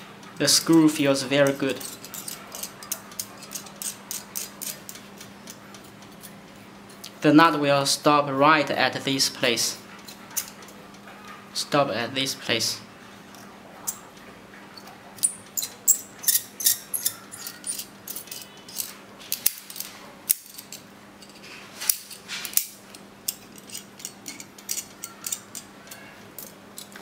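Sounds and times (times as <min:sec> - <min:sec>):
carabiners clinking: 0:00.3 - 0:06.3, 0:14.8 - 0:27.0.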